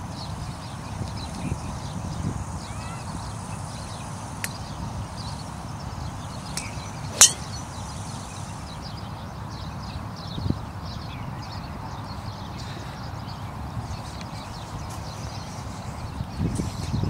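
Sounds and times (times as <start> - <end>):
golf club striking ball: 6.5 - 7.6.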